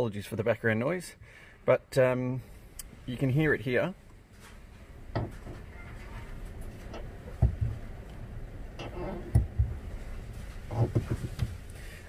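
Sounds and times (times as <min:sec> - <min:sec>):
pedal knocking against stops: 0:06.9 - 0:07.8
clutch pedal squeaking: 0:08.8 - 0:09.6.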